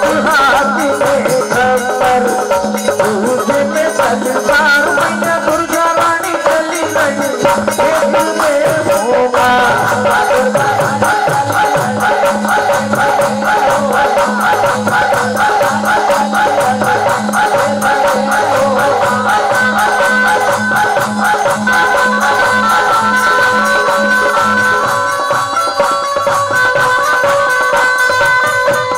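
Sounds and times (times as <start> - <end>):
rattling percussion: 0.0 - 28.9
steady drum beat: 0.0 - 28.9.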